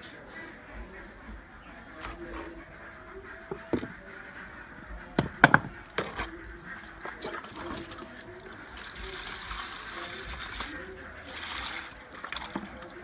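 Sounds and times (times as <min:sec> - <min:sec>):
wooden knocks on concrete floor: 0:03.5 - 0:04.0, 0:05.2 - 0:06.3.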